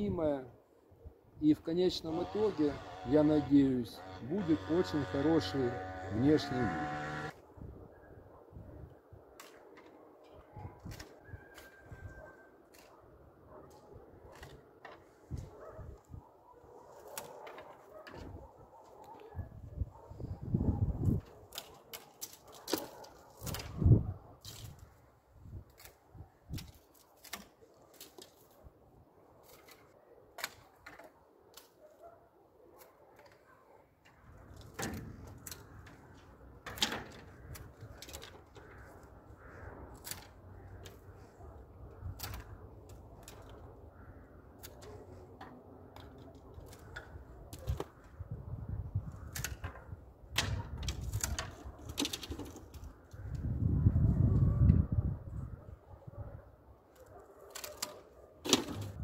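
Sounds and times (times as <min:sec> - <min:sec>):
pruning shears snipping: 0:04.4 - 0:07.3, 0:39.9 - 0:41.1, 0:42.0 - 0:43.7, 0:57.4 - 0:58.9.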